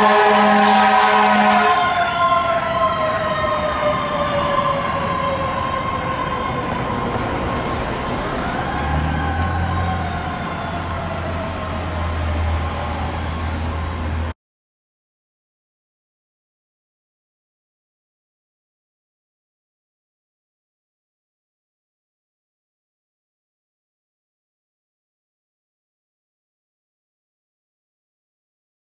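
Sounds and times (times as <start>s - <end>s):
fire siren winding down: 0.0s - 14.3s.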